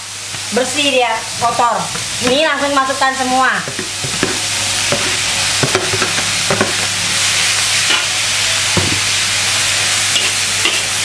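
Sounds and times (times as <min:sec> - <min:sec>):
vegetables sizzling in wok: 0:00.0 - 0:11.0
spatula scraping pan: 0:03.6 - 0:09.2, 0:10.1 - 0:11.0.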